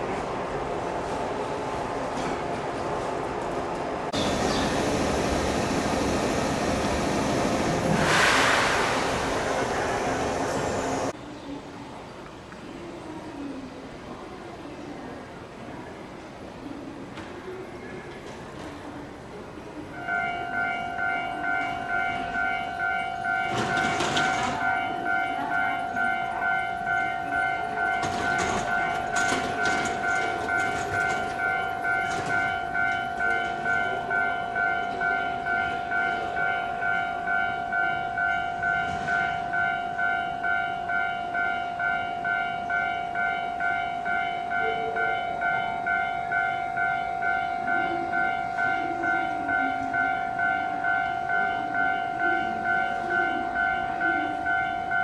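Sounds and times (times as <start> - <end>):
train clanks and rattles: 0.0 - 11.2, 17.1 - 19.2, 19.8 - 55.0.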